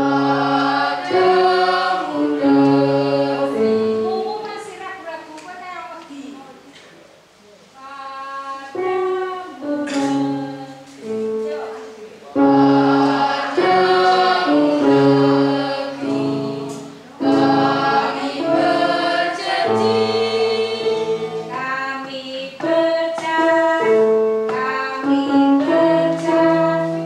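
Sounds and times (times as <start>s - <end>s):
choir singing held notes: 0.0s - 4.4s, 12.3s - 27.0s.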